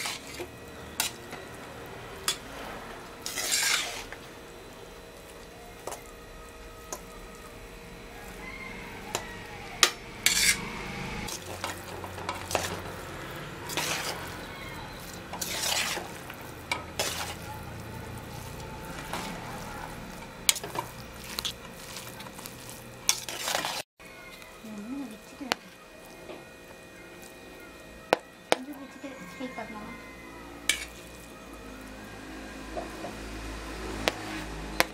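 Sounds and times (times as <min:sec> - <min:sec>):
metal spoon scraping a steel pot: 0:03.2 - 0:04.2, 0:09.8 - 0:13.0, 0:13.6 - 0:17.5, 0:18.6 - 0:23.8, 0:30.7 - 0:31.2.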